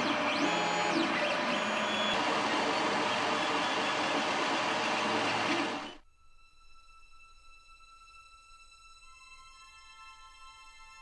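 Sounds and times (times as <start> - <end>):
cooling fans whirring: 0.0 - 6.0
stepper motors whining: 0.0 - 6.0.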